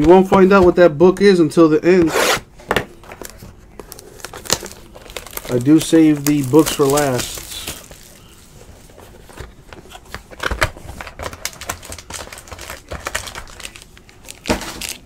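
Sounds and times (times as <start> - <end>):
cardboard box and foil pack handling: 3.0 - 15.0.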